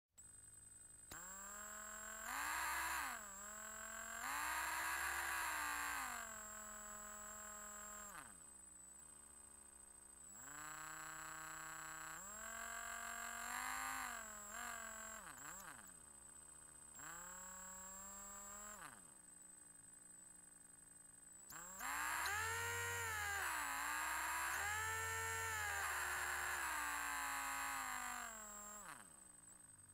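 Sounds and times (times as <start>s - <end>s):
electric drill motor whining: 1.0s - 8.5s, 10.3s - 19.1s, 21.5s - 29.8s
thin high whine: 10.2s - 29.8s.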